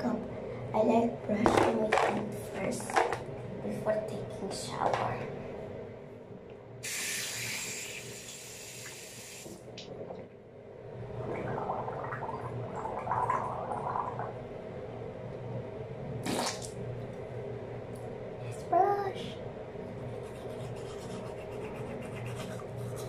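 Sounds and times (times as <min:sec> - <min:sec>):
bathroom tap running: 0:06.8 - 0:09.6
person gargling water: 0:11.2 - 0:14.4, 0:16.2 - 0:16.7.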